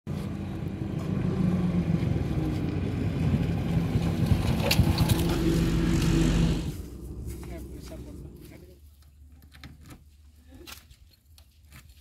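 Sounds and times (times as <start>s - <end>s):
small motorcycle engine running: 1.8s - 6.9s.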